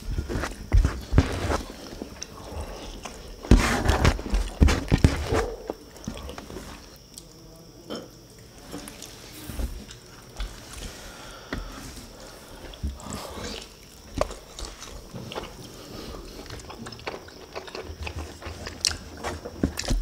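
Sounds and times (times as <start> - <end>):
wet chewing and mouth smacks: 16.4 - 19.2.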